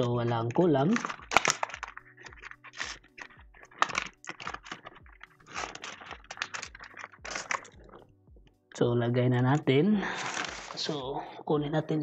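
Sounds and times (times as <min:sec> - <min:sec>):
plastic bag crinkling: 0:00.0 - 0:08.0, 0:10.1 - 0:11.0
faint background music: 0:00.0 - 0:12.0
screws clicking in bag: 0:00.9 - 0:07.9.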